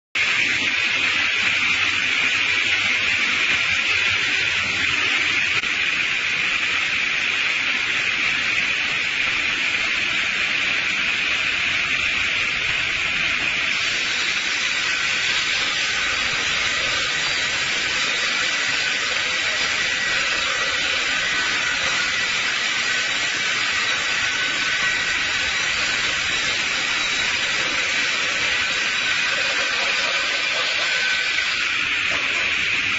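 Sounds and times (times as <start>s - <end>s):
saw cutting log: 13.6s - 32.8s.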